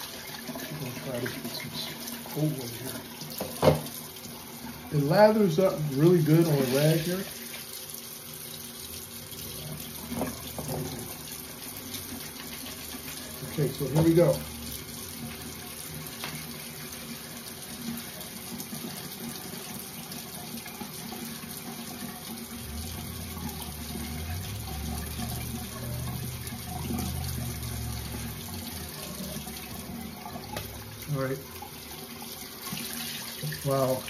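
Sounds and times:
tap running into sink basin: 0:03.2 - 0:04.1, 0:09.7 - 0:14.4, 0:18.0 - 0:34.0.

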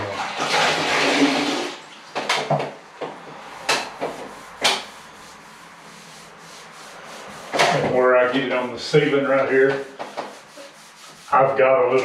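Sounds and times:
sharp clacks and knocks: 0:02.1 - 0:04.9
damp sponge wiping tile: 0:03.5 - 0:11.7.

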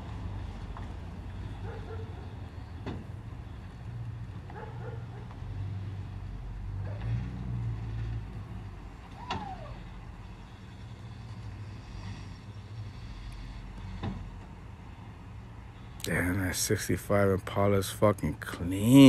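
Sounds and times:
short falling squeak: 0:09.1 - 0:09.8.

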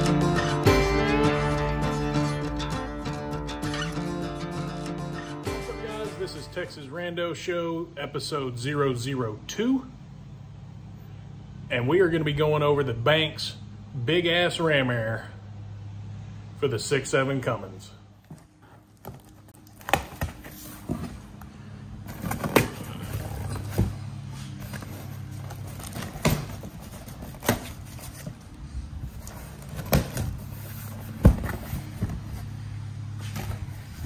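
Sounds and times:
steady low hum: 0:00.0 - 0:34.0
cardboard box being opened: 0:22.1 - 0:28.5.

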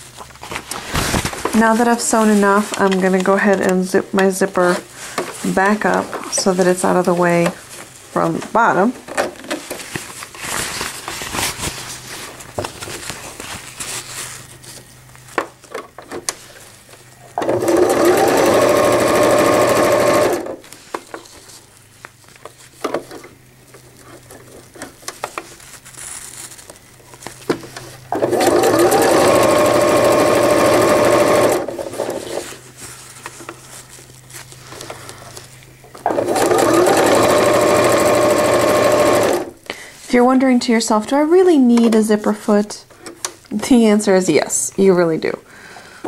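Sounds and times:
sewing machine stitching: 0:17.4 - 0:20.6, 0:28.1 - 0:32.4, 0:36.1 - 0:39.5.

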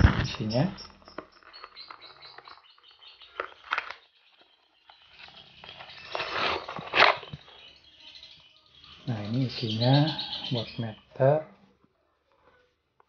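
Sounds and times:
faint high chirps: 0:00.0 - 0:12.8
paper rustling: 0:03.2 - 0:07.5.

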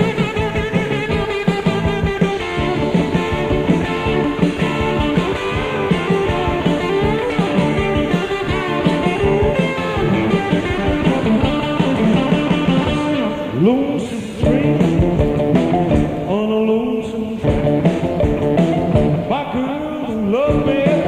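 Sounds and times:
guitar note sliding: 0:00.0 - 0:13.6
blues rock band playing: 0:00.0 - 0:21.0.

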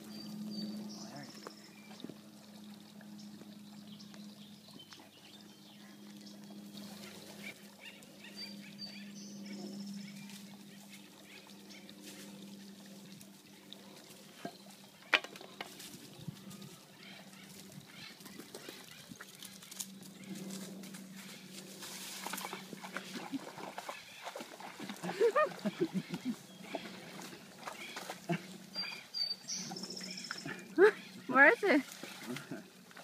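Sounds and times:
steady low hum: 0:00.0 - 0:15.1
pond water trickling and lapping: 0:00.0 - 0:33.0.

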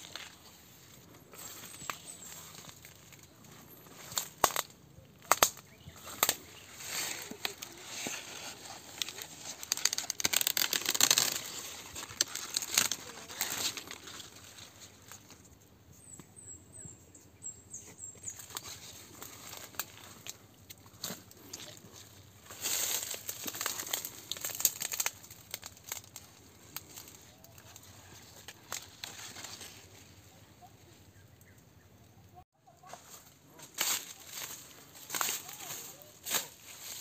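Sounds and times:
faint birds chirping: 0:00.0 - 0:09.3, 0:13.0 - 0:24.3, 0:26.1 - 0:32.8
dry corn leaves rustling: 0:00.0 - 0:15.6, 0:18.2 - 0:31.3, 0:32.7 - 0:37.0
corn stalk snapping: 0:04.1 - 0:14.6, 0:22.5 - 0:29.8, 0:33.7 - 0:37.0.

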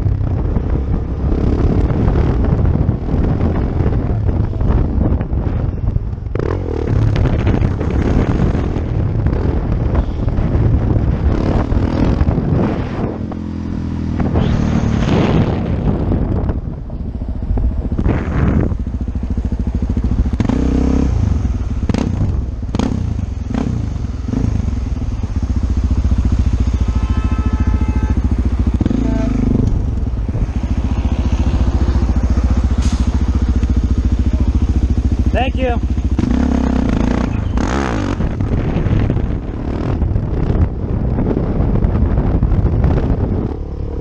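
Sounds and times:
dirt bike engine revving: 0:28.1 - 0:40.0.

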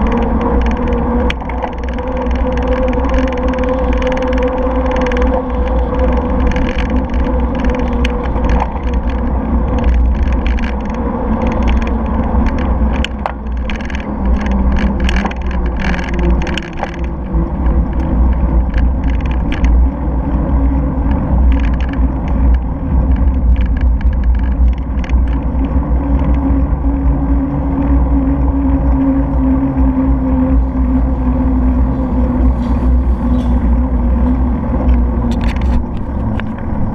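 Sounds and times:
short clicks and rattles: 0:00.0 - 0:19.8, 0:21.0 - 0:26.4
bicycle tyre noise on tarmac: 0:00.0 - 0:36.9
wind rumbling on microphone: 0:00.0 - 0:36.9.

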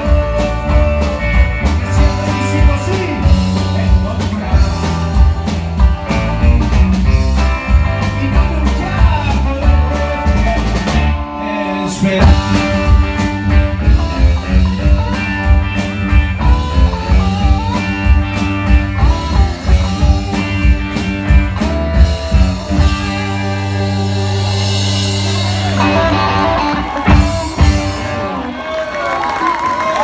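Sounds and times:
rock band playing: 0:00.0 - 0:30.0.

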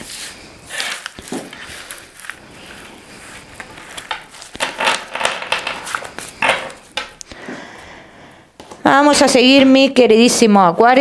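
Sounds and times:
cards shuffling: 0:00.0 - 0:07.2.

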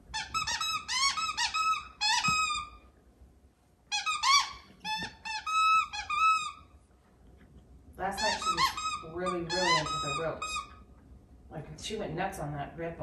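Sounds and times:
squeaky dog toy squeaking: 0:00.1 - 0:02.9, 0:03.9 - 0:06.8, 0:08.2 - 0:10.8.

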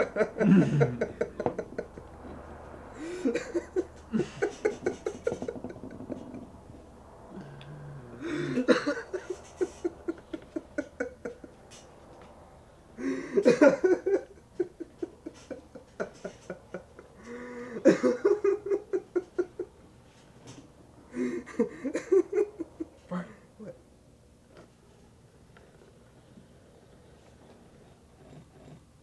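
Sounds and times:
men laughing: 0:00.0 - 0:06.7, 0:08.1 - 0:12.0, 0:13.0 - 0:19.8, 0:21.1 - 0:23.8.

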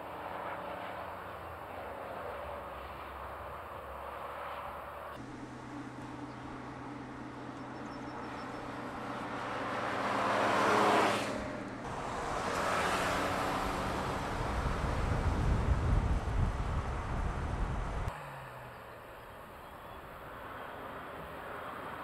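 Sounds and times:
car engine and tyre noise: 0:00.0 - 0:22.0.

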